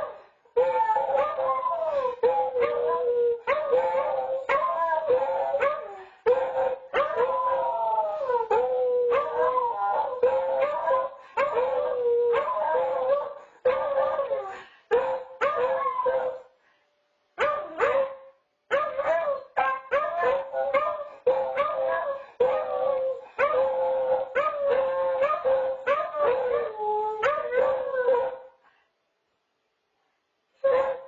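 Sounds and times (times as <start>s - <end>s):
dogs howling and baying: 0.0s - 16.5s, 17.4s - 28.5s, 30.6s - 31.0s.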